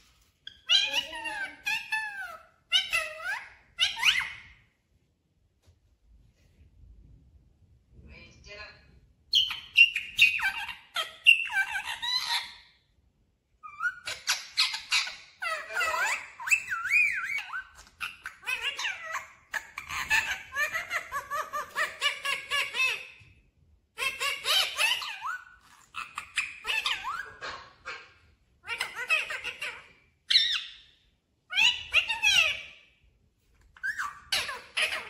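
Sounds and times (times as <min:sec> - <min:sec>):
parakeet chattering: 0:00.4 - 0:04.6, 0:09.3 - 0:12.6, 0:13.6 - 0:23.2, 0:24.0 - 0:30.9, 0:31.5 - 0:32.8, 0:33.7 - 0:35.0.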